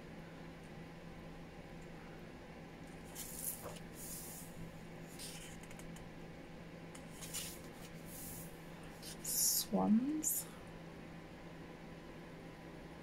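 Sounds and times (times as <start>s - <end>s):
faint low hum: 0.0s - 13.0s
paper pages rustling: 3.0s - 4.4s, 7.0s - 9.2s.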